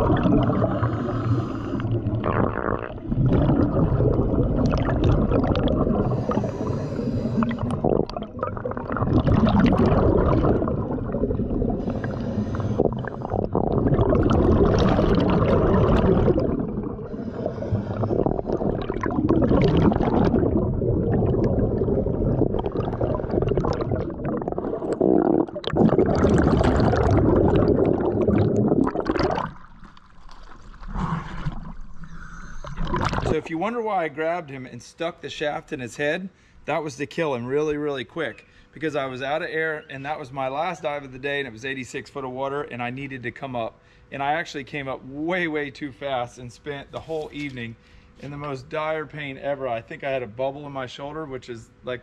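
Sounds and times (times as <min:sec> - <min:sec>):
underwater bubbles gurgling: 0:00.0 - 0:33.5.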